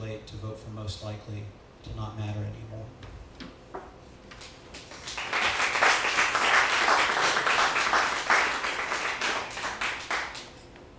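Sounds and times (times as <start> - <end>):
audience applause: 4.9 - 10.5.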